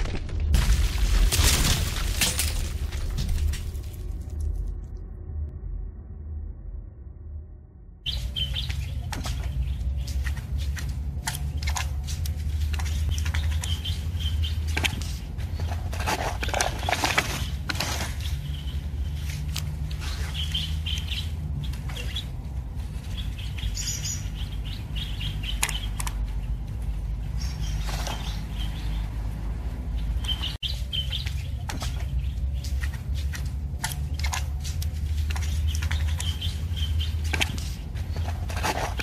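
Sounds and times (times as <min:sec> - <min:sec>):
steady low rumble: 0:00.1 - 0:39.0
small birds chirping: 0:08.0 - 0:39.0.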